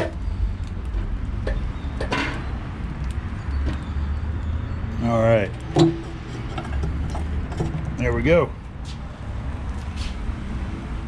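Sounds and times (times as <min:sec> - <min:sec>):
metal basket scraping: 0:05.6 - 0:07.8.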